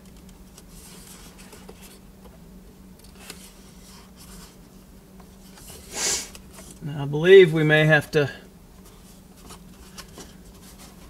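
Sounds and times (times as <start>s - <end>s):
steady low hum: 0.0s - 11.0s
loud scrape: 5.7s - 6.4s.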